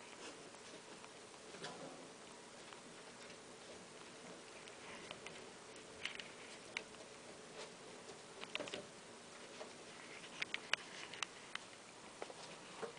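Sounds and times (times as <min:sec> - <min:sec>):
baby rats ticking and clicking: 0:00.0 - 0:12.9
steady low hiss: 0:00.0 - 0:12.9.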